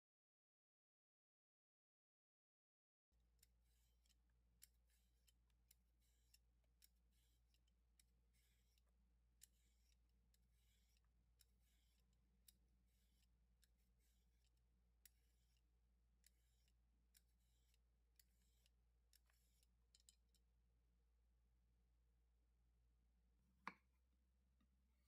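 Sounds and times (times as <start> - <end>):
vegetable peeler scraping: 3.4 - 20.4.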